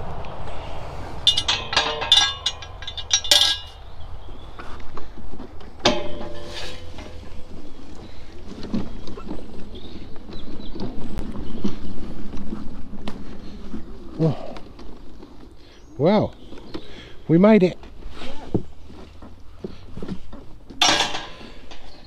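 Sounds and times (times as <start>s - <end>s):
metal gate clang: 1.2s - 4.0s, 5.8s - 7.6s, 20.8s - 22.0s
metal gate rattling: 1.2s - 4.0s, 5.8s - 7.7s, 20.8s - 22.0s.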